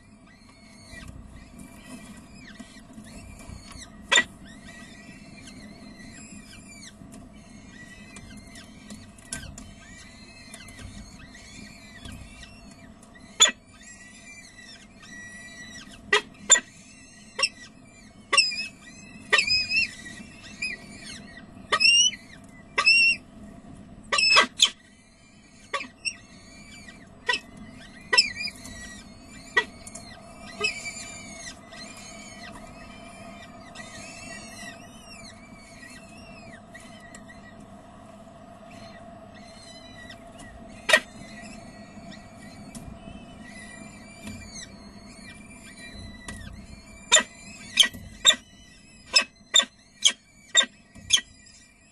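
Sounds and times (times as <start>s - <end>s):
falcon chicks cheeping: 0.0s - 51.9s
steady low hum: 0.0s - 51.9s.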